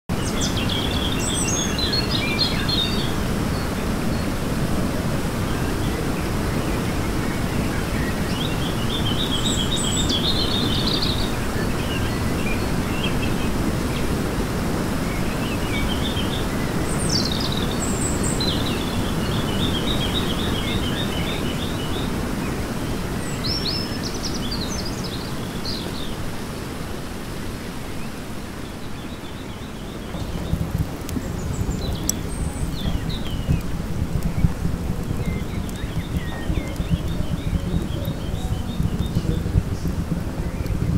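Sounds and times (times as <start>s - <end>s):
low rushing noise: 26.2s - 40.9s
songbirds singing trilled phrases: 28.9s - 40.9s.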